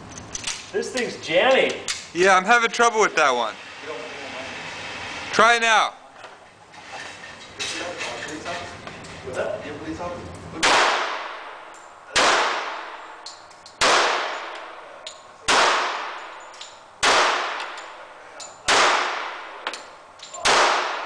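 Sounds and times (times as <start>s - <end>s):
pistol shots echoing indoors: 10.6s - 13.2s, 13.8s - 14.8s, 15.4s - 16.4s, 17.0s - 18.0s, 18.7s - 19.7s, 20.4s - 21.0s.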